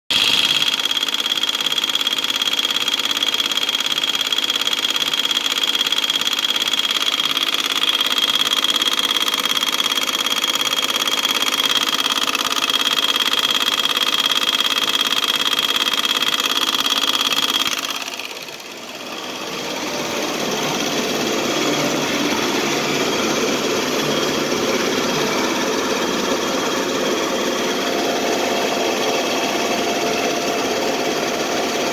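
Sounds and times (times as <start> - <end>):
car engine running: 0.1 - 31.9
compressor whine: 6.8 - 31.9
rough mechanical noise: 6.9 - 31.9.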